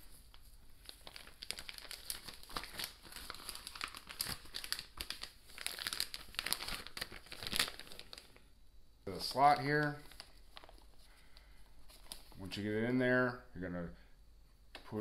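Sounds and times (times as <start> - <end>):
plastic bag crinkling: 0.0 - 8.5, 9.1 - 12.6.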